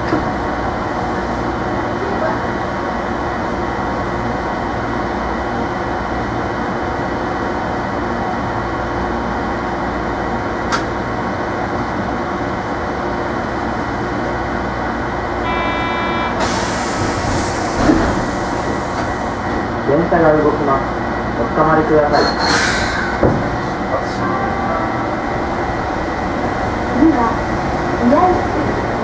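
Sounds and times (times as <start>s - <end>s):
tram car hum and rumble: 0.0s - 29.0s
short buzzer: 15.4s - 16.5s.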